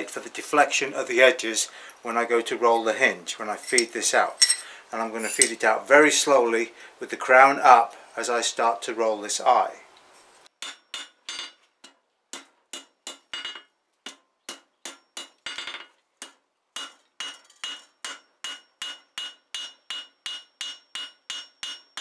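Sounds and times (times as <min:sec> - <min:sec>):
hammer striking steel on anvil: 0:03.6 - 0:05.6, 0:10.6 - 0:11.6, 0:12.3 - 0:22.0.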